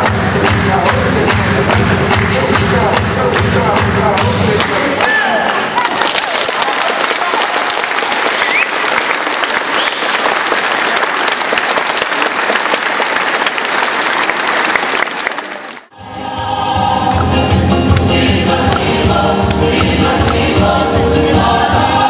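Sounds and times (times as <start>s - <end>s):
music with group singing and bass: 0.0s - 5.4s, 15.9s - 22.0s
audience applauding: 5.0s - 15.9s.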